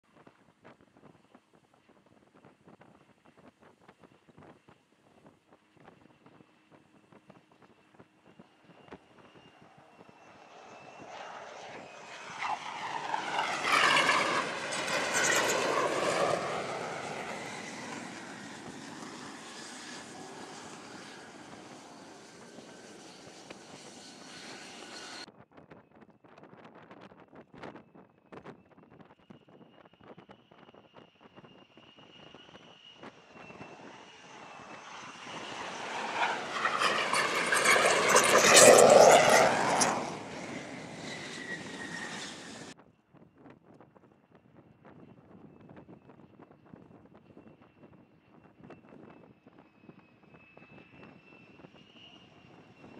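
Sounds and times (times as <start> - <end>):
jet engine roar: 7.6 - 25.3, 30.2 - 42.8, 47.3 - 52.9.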